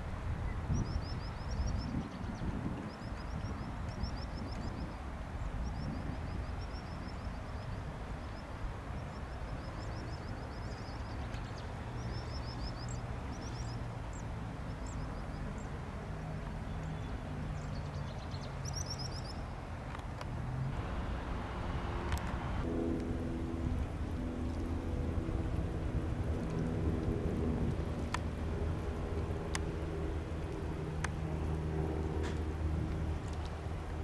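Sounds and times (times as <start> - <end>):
small birds chirping: 16.6 - 19.5
distant propeller plane droning: 20.2 - 34.0.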